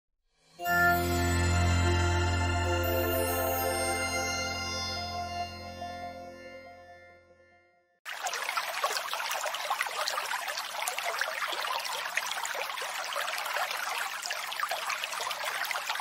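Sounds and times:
water trickling and splashing: 8.1 - 16.0.

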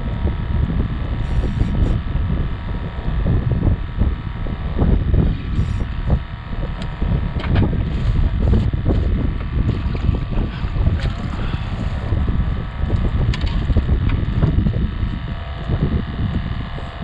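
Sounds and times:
wind buffeting microphone: 0.0 - 17.0
sharp knocks and clicks: 6.8 - 7.7.

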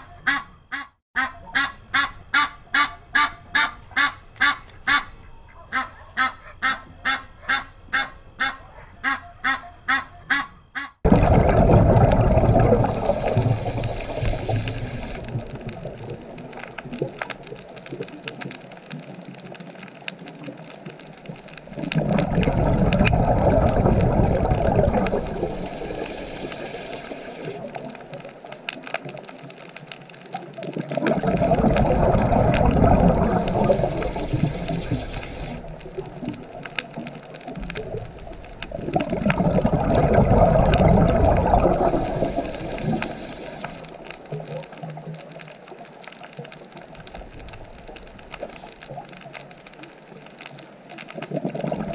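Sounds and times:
underwater bubbling rushing water: 11.1 - 51.9.

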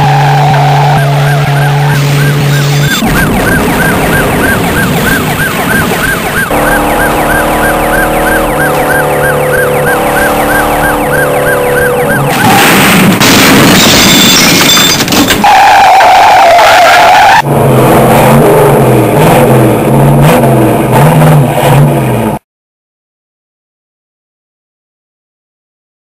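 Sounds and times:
police siren yelping: 0.0 - 12.7
steady siren tones: 0.0 - 12.7
loud crash noise: 12.3 - 15.5.

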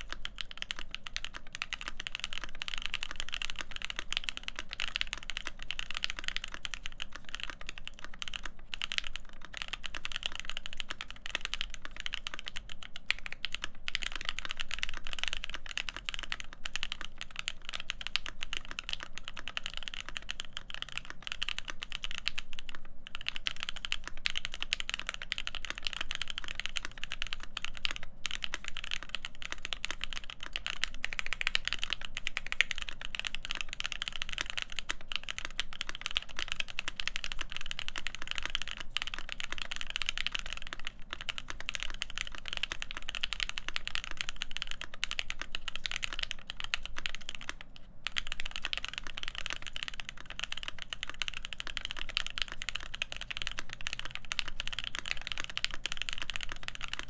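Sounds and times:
mechanical keyboard typing: 0.0 - 57.0.

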